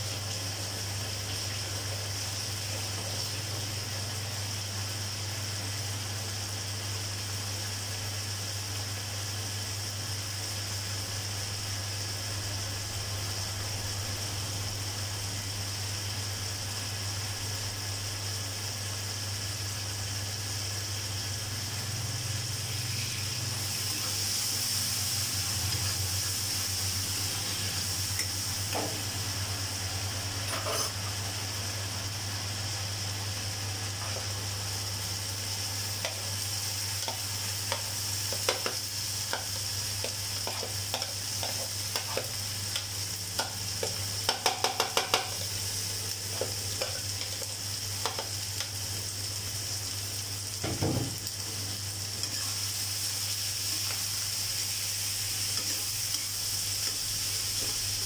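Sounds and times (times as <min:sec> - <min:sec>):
food sizzling in a pan: 0:00.0 - 0:58.0
spatula scraping and tapping pan: 0:37.0 - 0:42.8, 0:43.4 - 0:45.4.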